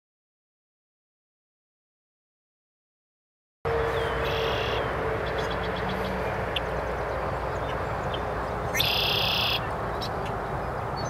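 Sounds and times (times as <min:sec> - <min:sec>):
bird buzzy trilling song: 0:03.7 - 0:11.0.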